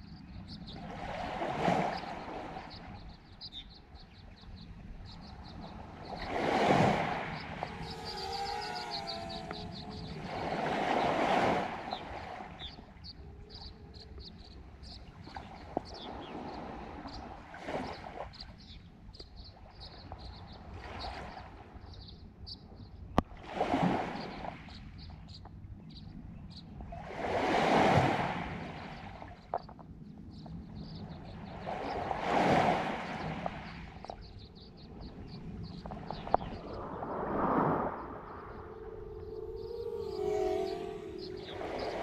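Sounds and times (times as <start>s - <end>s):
lake waves washing onto shore: 5.6s - 18.1s
faint high chirp: 33.2s - 42.0s.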